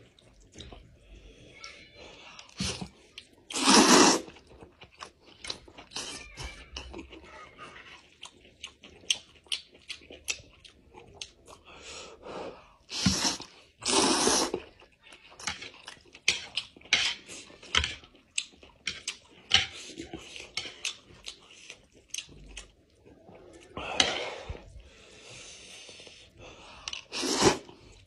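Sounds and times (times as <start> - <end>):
slurping noodles: 2.4 - 5.1, 12.4 - 14.8, 23.3 - 28.0
wet chewing and lip-smacking: 4.2 - 7.2, 7.8 - 11.7, 14.5 - 23.8.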